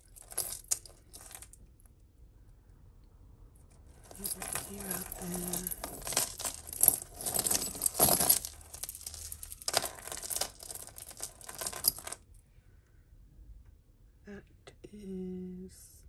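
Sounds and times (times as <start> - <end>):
beads and chain links clinking: 0.0 - 1.6, 3.9 - 12.2
rustling: 3.9 - 12.2.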